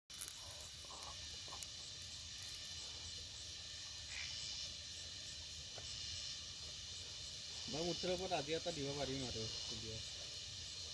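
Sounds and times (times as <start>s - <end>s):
insects chirping: 0.1s - 10.9s.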